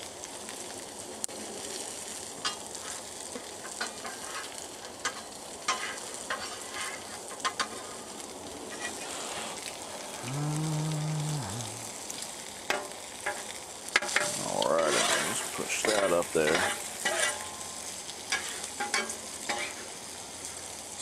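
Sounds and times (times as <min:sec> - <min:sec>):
food sizzling on a griddle: 0:00.0 - 0:21.0
metal spatula scraping steel: 0:14.9 - 0:17.5.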